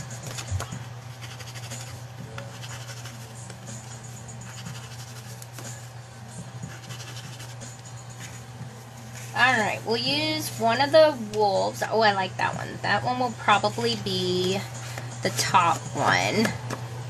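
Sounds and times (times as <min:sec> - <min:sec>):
low steady hum: 0:00.0 - 0:17.0
ink tool scratching cardstock: 0:00.3 - 0:05.8, 0:06.6 - 0:08.3.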